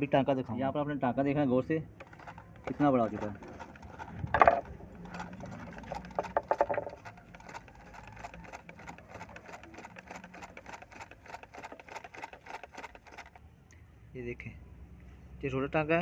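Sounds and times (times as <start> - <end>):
sewing machine stitching: 2.0 - 13.4.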